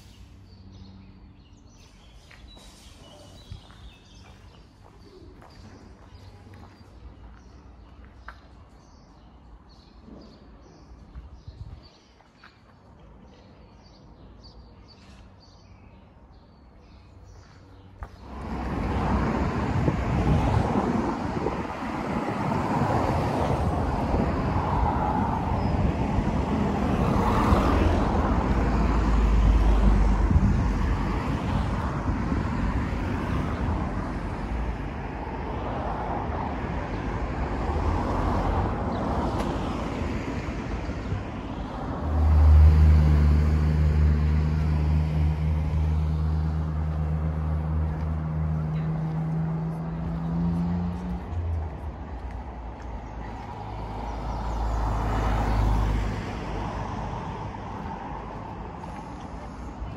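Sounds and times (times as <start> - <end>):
faint birdsong: 0.0 - 18.6
road traffic rush: 0.0 - 59.9
vehicle engine hum: 18.0 - 59.9.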